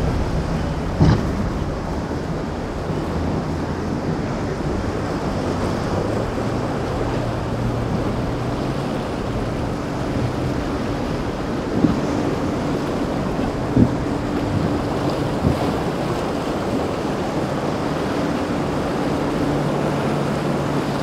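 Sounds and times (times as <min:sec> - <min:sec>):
boat engines droning: 0:00.0 - 0:21.0
rough surf: 0:00.0 - 0:21.0
wind buffeting microphone: 0:00.0 - 0:21.0
short thump: 0:01.0 - 0:01.6.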